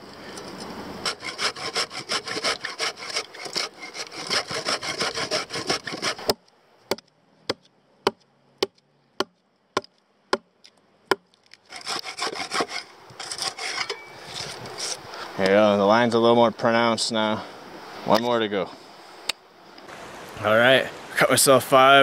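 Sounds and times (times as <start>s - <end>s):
saw cutting a log: 1.0s - 6.4s, 11.7s - 15.0s
axe chopping: 2.1s - 10.5s, 11.1s - 12.8s.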